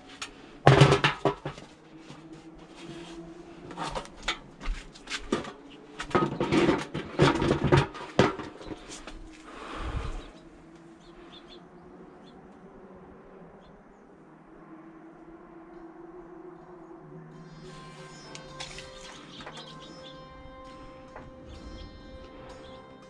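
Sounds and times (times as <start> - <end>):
timber and tools knocking and clattering: 0.6 - 2.2, 3.7 - 9.1.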